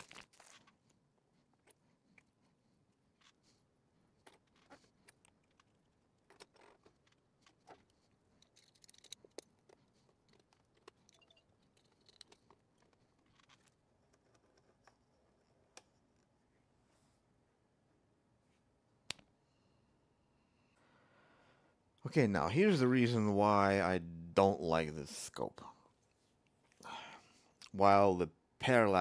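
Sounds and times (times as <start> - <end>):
clicks and taps of small parts: 6.3 - 15.0.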